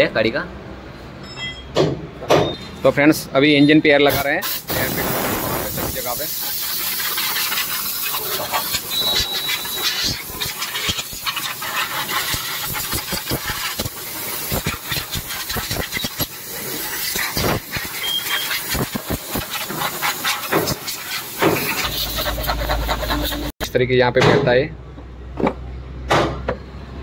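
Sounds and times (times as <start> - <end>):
compressed air blow gun hissing: 4.1 - 23.5.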